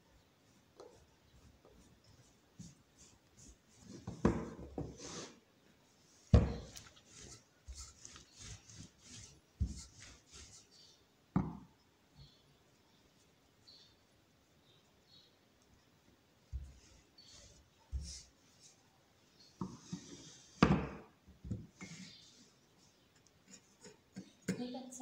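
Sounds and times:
dough rubbing strokes: 0:00.3 - 0:11.0, 0:16.5 - 0:18.9.

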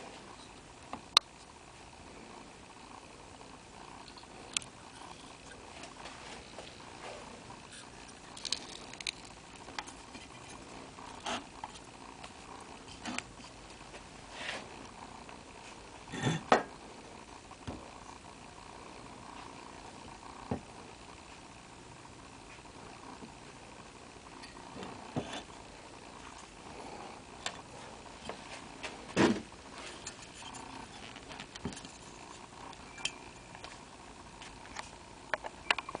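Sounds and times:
metal parts scraping: 0:08.2 - 0:09.3.

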